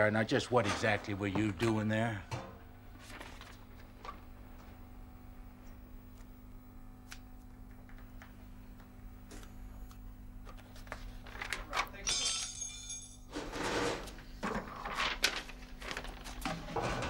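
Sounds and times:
steady low hum: 0.0s - 17.0s
paper rustling and crinkling: 2.9s - 4.7s, 10.4s - 12.0s, 14.0s - 17.0s.

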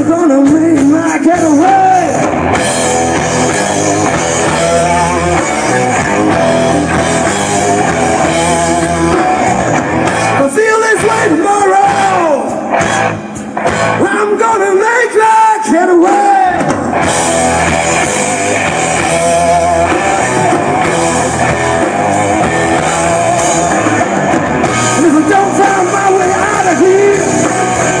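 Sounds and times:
drum kit: 0.0s - 14.9s, 16.0s - 28.0s
electric guitars: 0.0s - 28.0s
person singing: 4.0s - 12.7s, 18.7s - 21.5s, 22.2s - 28.0s.

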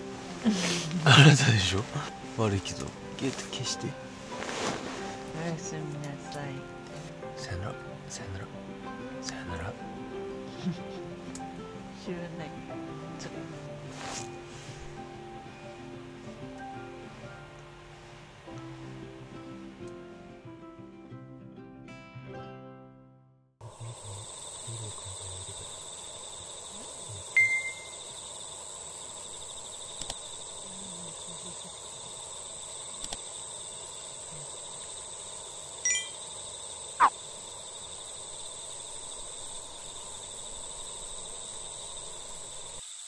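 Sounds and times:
insects singing: 0.0s - 15.4s, 23.6s - 43.0s
falling bird whistle: 27.4s - 28.1s
bird calls: 37.0s - 37.2s.

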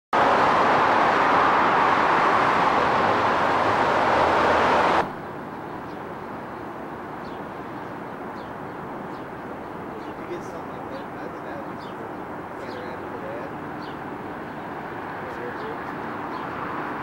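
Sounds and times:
road and wind noise in vehicle: 0.1s - 17.0s.

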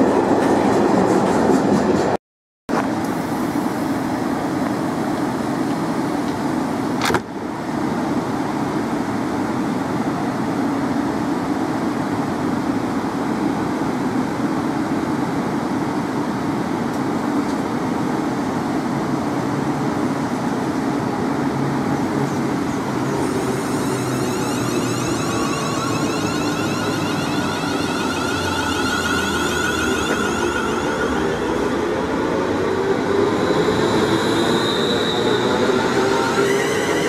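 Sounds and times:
train equipment humming: 16.2s - 37.0s.

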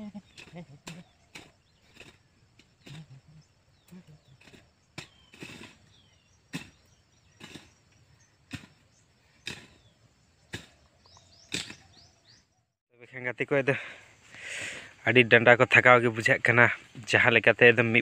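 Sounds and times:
hoe chopping into soil: 4.4s - 12.1s.

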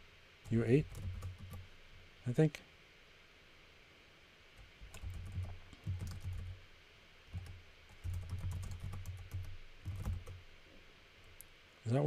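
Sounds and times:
typing on computer keyboard: 0.5s - 1.7s, 4.8s - 6.6s, 7.3s - 10.4s.

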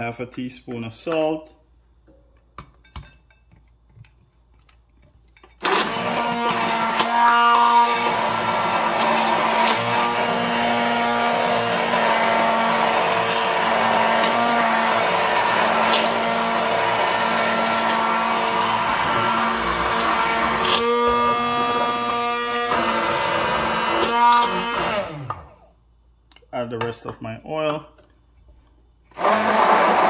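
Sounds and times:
immersion blender motor hum: 5.6s - 25.6s, 29.1s - 30.0s.

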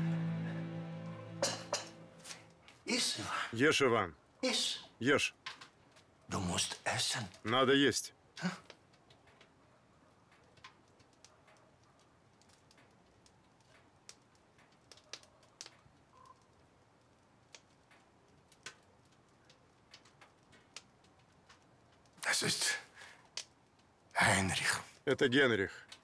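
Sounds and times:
faint small clicks: 10.2s - 22.2s, 23.1s - 23.9s.

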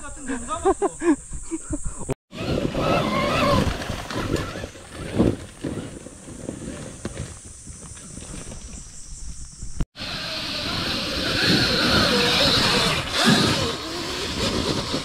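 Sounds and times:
tyres scrabbling in loose dirt: 2.4s - 15.0s
electric motor hissing: 10.0s - 15.0s.

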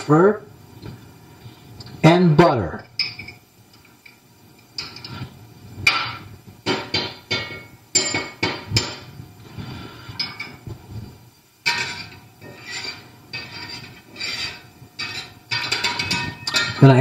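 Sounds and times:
metal spatula scraping skillet: 11.6s - 16.9s.

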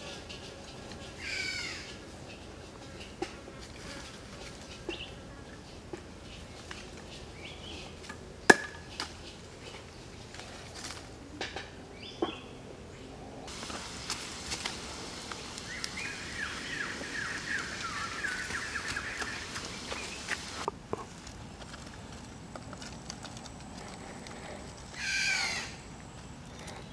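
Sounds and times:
hatchet chopping wood: 8.5s - 9.1s
bird chirping: 11.9s - 13.2s, 15.6s - 20.7s
outdoor hiss: 13.5s - 22.2s.

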